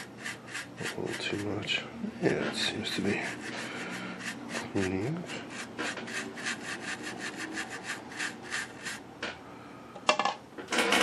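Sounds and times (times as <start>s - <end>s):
brush scrubbing paper speaker cone: 0.0s - 1.8s, 2.6s - 9.0s.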